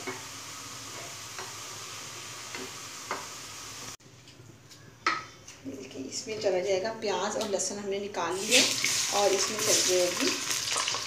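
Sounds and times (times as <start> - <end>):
onions sizzling in hot oil: 0.0 - 4.0, 8.3 - 11.0.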